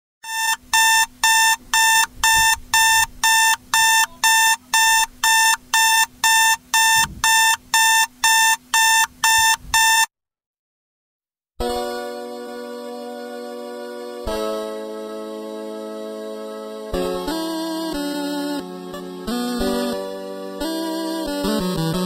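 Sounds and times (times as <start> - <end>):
digital alarm clock beeping: 0.2 - 10.1.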